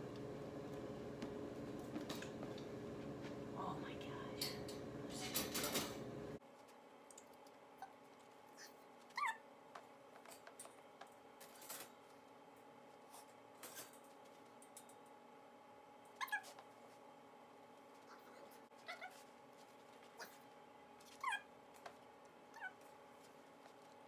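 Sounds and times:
puppy whining: 0:07.8 - 0:09.5, 0:16.2 - 0:16.6, 0:17.9 - 0:19.3, 0:20.0 - 0:23.0.

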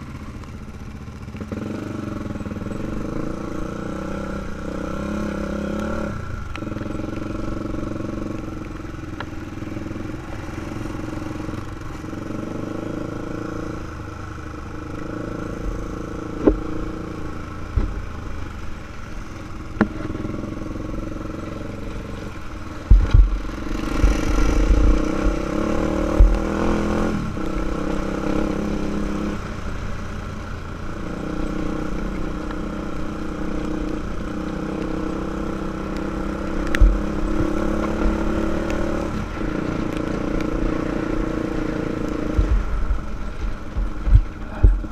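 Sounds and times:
quad engine revving: 0:01.2 - 0:08.6, 0:09.8 - 0:13.9, 0:19.8 - 0:29.6, 0:30.8 - 0:42.6
heavy low thumps: 0:22.8 - 0:25.4, 0:26.0 - 0:26.6.

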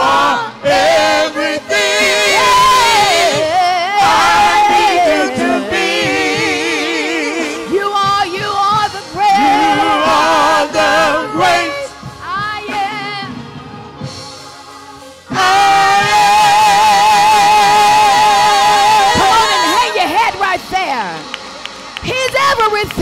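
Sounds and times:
choir singing gospel song: 0:00.0 - 0:22.6.

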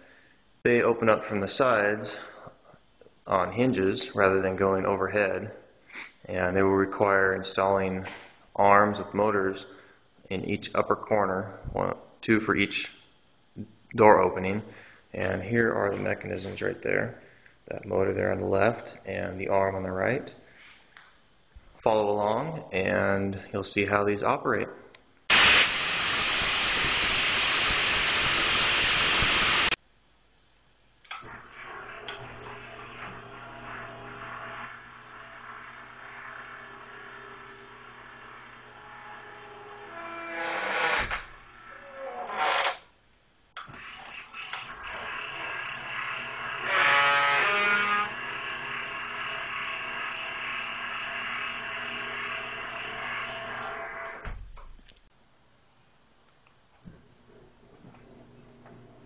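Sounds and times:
static hiss: 0:25.0 - 0:31.4
door opener motor humming: 0:31.2 - 0:40.4, 0:44.3 - 0:54.4.

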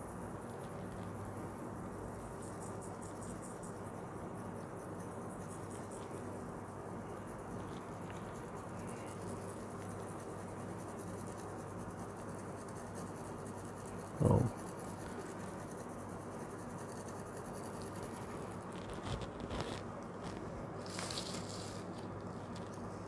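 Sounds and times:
iron filings pattering on paper: 0:17.2 - 0:23.0.

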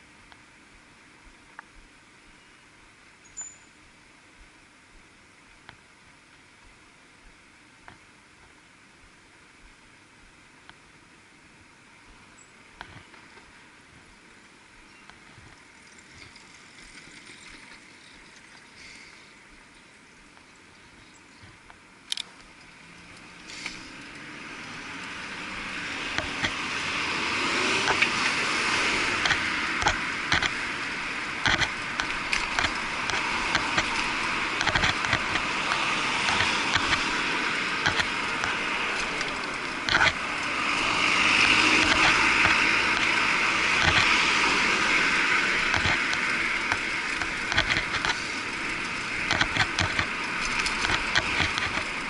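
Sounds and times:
muffled rushing riding noise: 0:19.5 - 0:52.0
bike and camera mount rattling: 0:31.4 - 0:40.4, 0:45.6 - 0:52.0.

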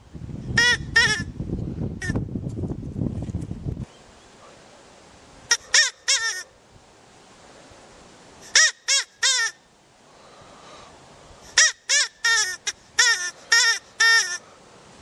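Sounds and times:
rabbit cries: 0:05.5 - 0:06.5, 0:11.5 - 0:14.4.

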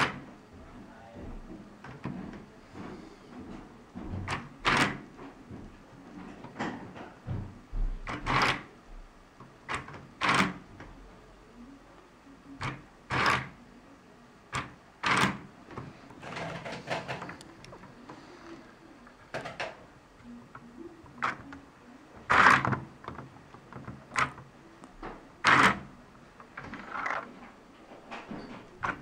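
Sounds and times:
plastic mechanism clacking: 0:09.4 - 0:10.7, 0:12.6 - 0:13.6, 0:14.5 - 0:18.0, 0:22.2 - 0:24.5, 0:25.4 - 0:27.3.

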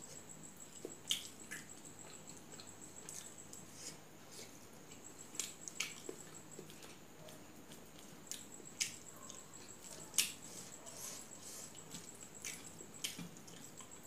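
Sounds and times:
wet chewing and lip smacks: 0:00.8 - 0:03.7, 0:04.4 - 0:10.4, 0:11.7 - 0:14.0.

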